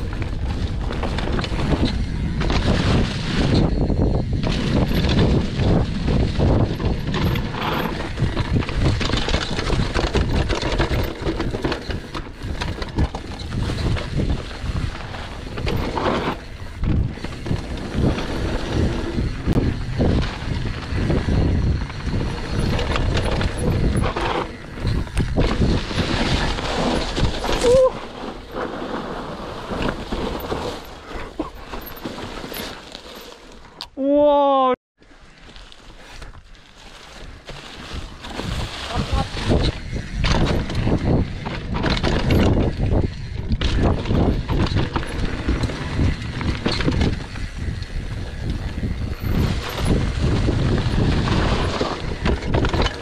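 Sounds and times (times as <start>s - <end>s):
wind on microphone: 0.0s - 31.6s, 37.2s - 53.0s
bike rattling and knocking: 0.0s - 33.8s, 35.6s - 53.0s
tyres rumbling over dirt and leaves: 0.0s - 33.8s, 35.0s - 53.0s.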